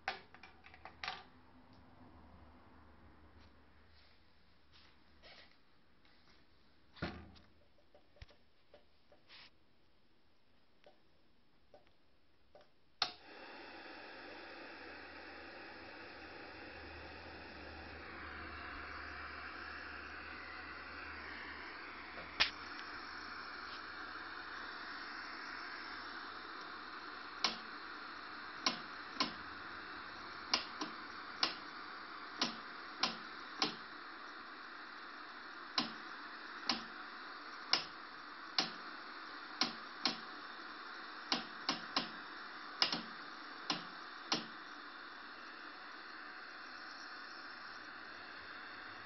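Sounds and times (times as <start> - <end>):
television static hiss: 8.2 - 49.0
sharp clicks: 42.8 - 43.1.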